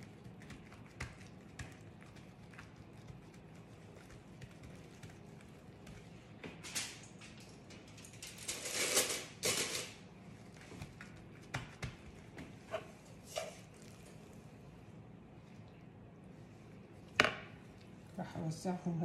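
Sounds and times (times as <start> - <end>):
hands slapping dough: 0.0 - 6.6, 10.5 - 12.7
light taps on dough: 0.5 - 5.2, 10.7 - 12.6.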